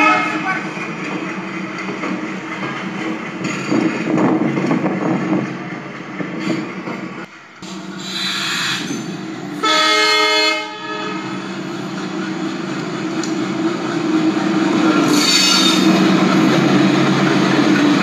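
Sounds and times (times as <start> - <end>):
train horn: 0.0 - 0.6, 8.0 - 9.0, 9.6 - 11.4, 15.1 - 16.0
train rumbling and clattering: 0.0 - 18.0.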